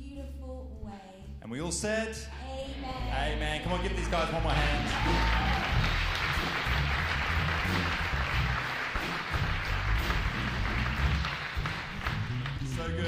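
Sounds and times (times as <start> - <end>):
live band playing softly: 2.8 - 13.0
congregation applauding: 3.2 - 13.0.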